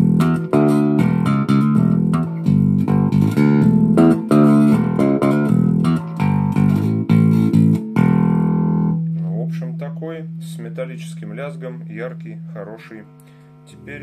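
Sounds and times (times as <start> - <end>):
plucked electric bass notes: 0.0 - 14.0.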